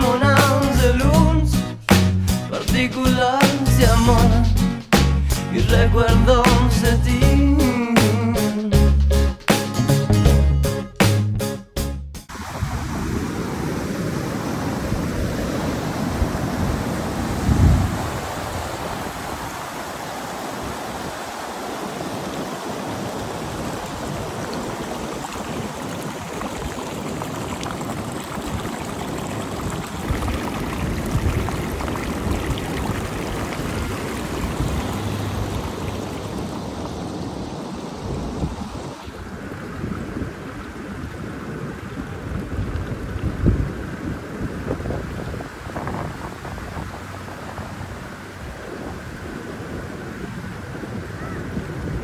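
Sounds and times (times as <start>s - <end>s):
mountain stream rushing: 12.3s - 52.0s
wind buffeting microphone: 12.3s - 52.0s.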